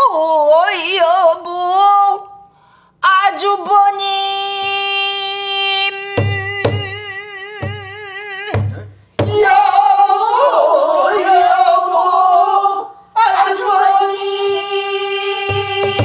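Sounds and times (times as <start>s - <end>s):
woman singing with vibrato: 0.0s - 2.4s, 3.0s - 16.0s
barrel drum strokes: 7.6s - 7.9s, 8.5s - 9.4s, 15.4s - 16.0s
several voices singing together: 9.2s - 16.0s.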